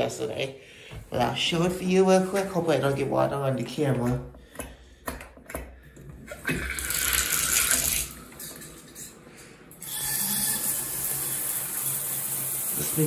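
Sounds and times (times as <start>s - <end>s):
water rushing from tub spout: 6.2s - 9.0s, 9.8s - 13.0s.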